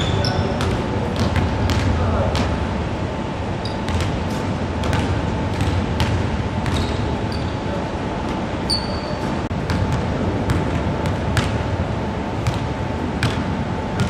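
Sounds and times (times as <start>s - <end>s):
shoe squeaks: 0.0s - 0.6s, 3.6s - 4.0s, 6.7s - 7.8s, 8.6s - 9.4s
basketballs bouncing on hardwood: 0.2s - 2.6s, 3.9s - 7.1s, 9.6s - 11.7s, 12.4s - 14.0s.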